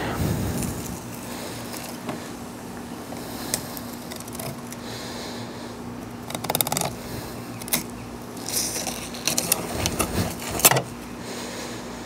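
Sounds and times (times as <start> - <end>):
steady low hum: 0.0 - 12.0
blade crackling through bone: 3.2 - 4.8, 6.0 - 10.8
knife scraping along fish bones: 3.5 - 4.7, 7.6 - 10.8.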